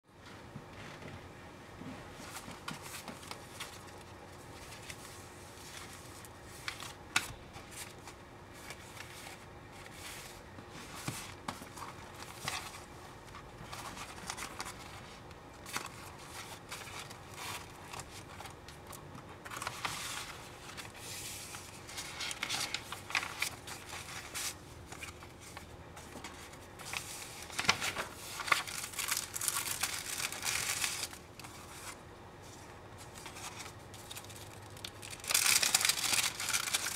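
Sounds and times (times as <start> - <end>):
paper and card rustling: 2.2 - 36.9.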